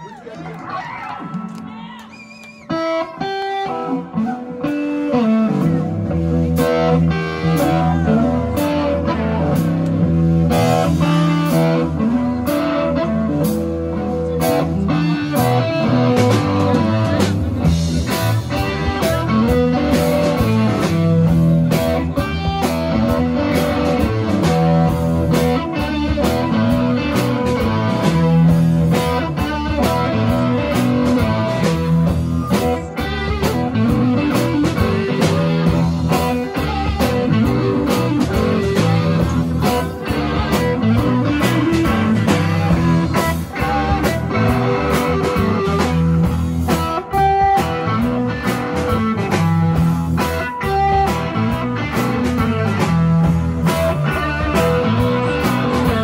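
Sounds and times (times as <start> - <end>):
electric guitars playing riff: 0.0 - 56.0
steady drum beat: 13.2 - 56.0.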